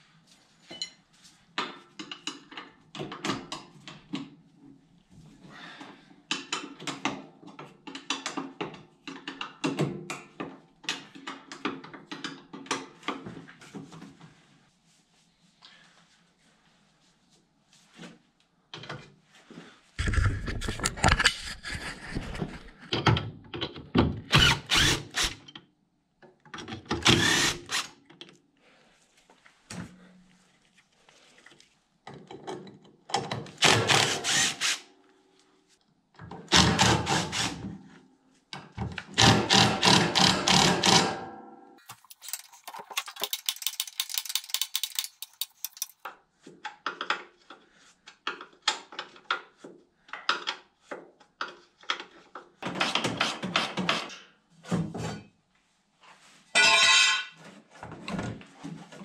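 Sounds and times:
hand tools clicking and clanking: 41.8 - 46.1.

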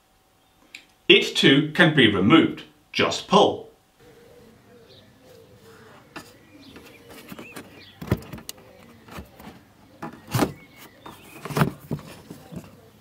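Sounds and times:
rubber scraping on plastic: 5.8 - 12.8.

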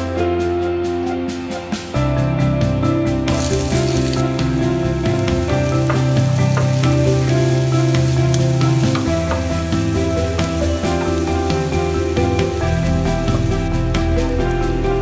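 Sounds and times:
shallots sizzling in oil: 3.3 - 15.0.

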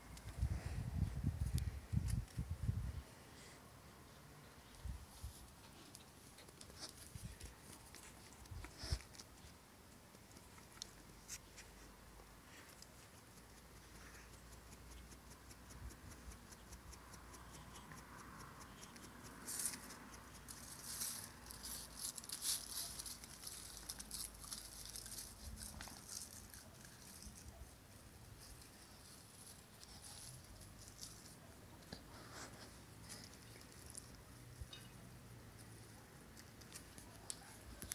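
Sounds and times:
paws scrabbling on concrete and leaves: 5.1 - 11.8, 19.0 - 34.4, 36.3 - 37.9.

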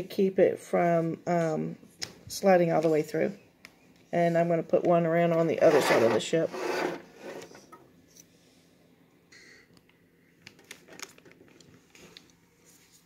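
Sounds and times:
plastic toy scraping: 5.3 - 7.7.

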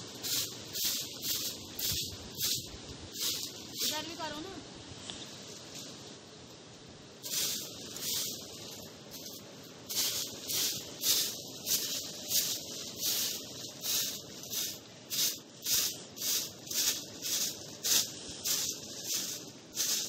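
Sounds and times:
broom sweeping dry leaves: 0.0 - 6.2, 7.2 - 20.0.

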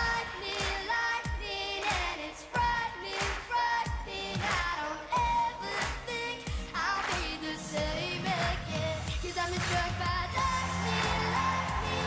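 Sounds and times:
boy singing pop song: 0.0 - 12.0
steady beat: 9.8 - 12.0.

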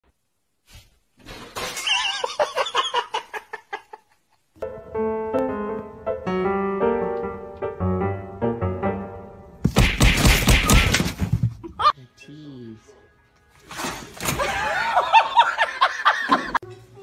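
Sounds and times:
piano-like keyboard melody: 4.6 - 9.6.

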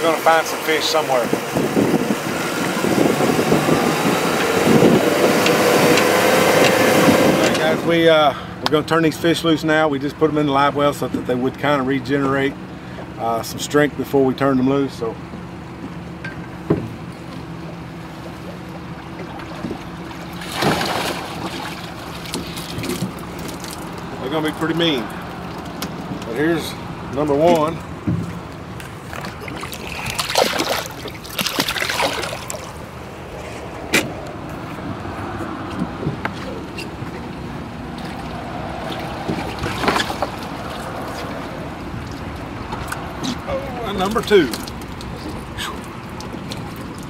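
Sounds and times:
water splashing: 17.0 - 33.7, 35.2 - 47.0.

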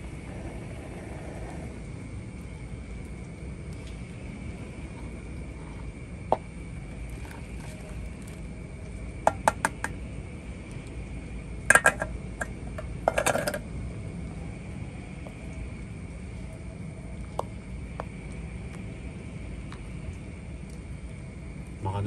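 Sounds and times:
metal pot and spoon clinking: 11.7 - 12.1.

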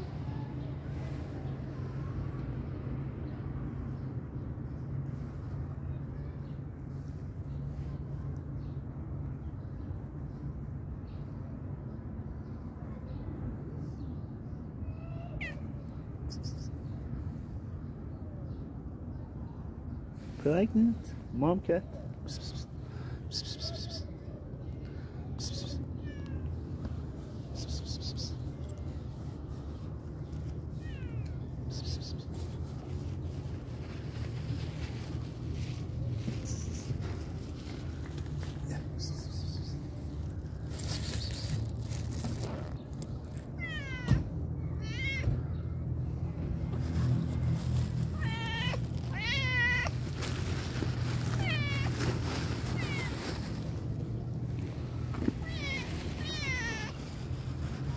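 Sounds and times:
cat meowing faintly: 14.8 - 16.7, 48.1 - 50.0, 52.6 - 53.6, 55.2 - 57.0.

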